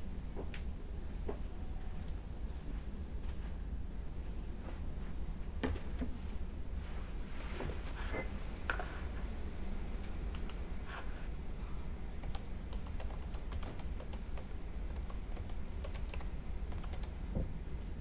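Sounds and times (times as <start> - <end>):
faint low hum: 0.0 - 18.0.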